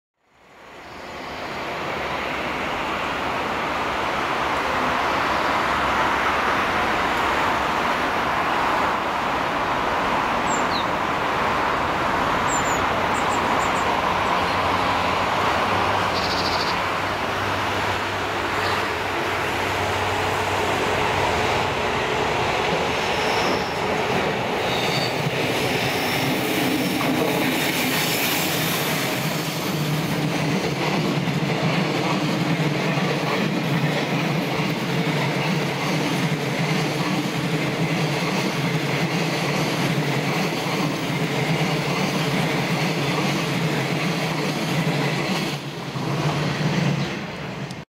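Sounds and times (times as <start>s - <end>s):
train wheels rumbling on rails: 1.0s - 47.8s
wheels squealing: 23.0s - 23.9s, 24.6s - 29.7s.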